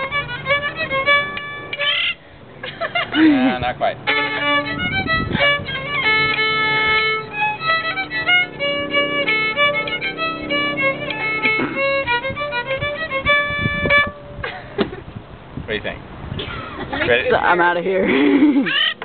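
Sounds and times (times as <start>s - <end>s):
solo fiddle playing: 0.0s - 14.8s.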